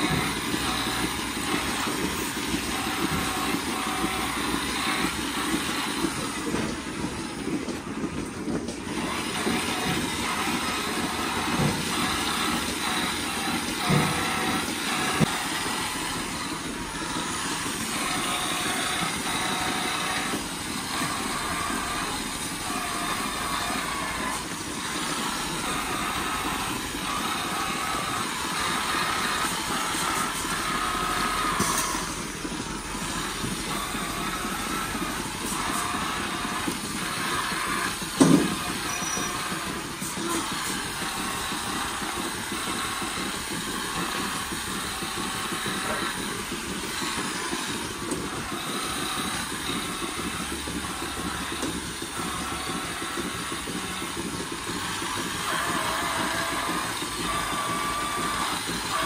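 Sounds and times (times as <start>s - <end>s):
milking machinery humming: 0.0s - 59.0s.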